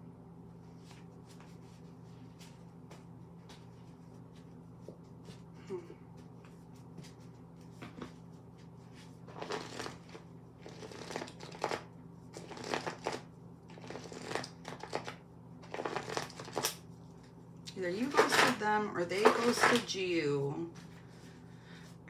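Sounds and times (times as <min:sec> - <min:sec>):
cards being shuffled by hand: 0:06.3 - 0:17.4, 0:19.2 - 0:19.9.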